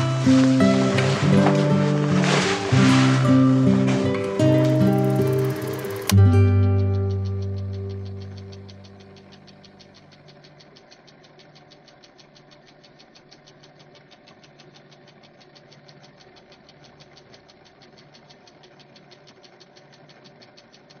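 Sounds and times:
low hum: 0:00.0 - 0:12.8
mechanical clatter: 0:00.0 - 0:21.0.

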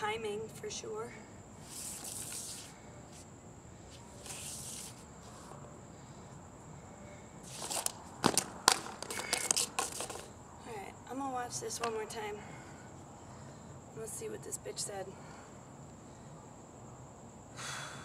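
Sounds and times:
boot scuffing on concrete: 0:01.6 - 0:03.3, 0:07.4 - 0:10.3
hoop clattering on concrete: 0:07.4 - 0:10.3, 0:11.8 - 0:12.2.

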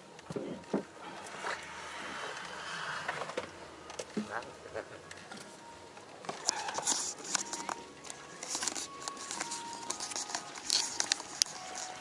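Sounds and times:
fabric rustling and scraping: 0:06.4 - 0:12.0.

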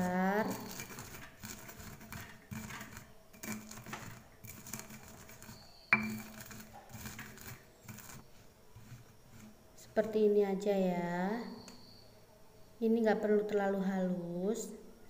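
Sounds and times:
stone pestle crushing peanuts: 0:00.0 - 0:10.2.

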